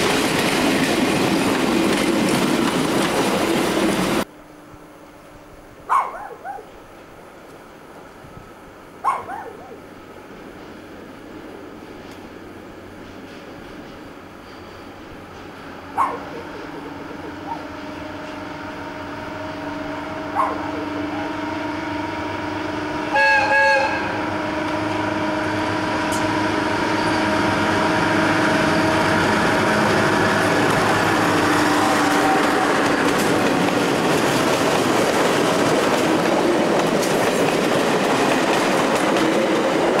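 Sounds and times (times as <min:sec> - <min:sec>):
train wheels rumbling on rails: 0:00.0 - 0:04.3, 0:06.4 - 0:40.0
diesel locomotive engine drone: 0:00.0 - 0:40.0
train horn blasts: 0:17.6 - 0:32.9.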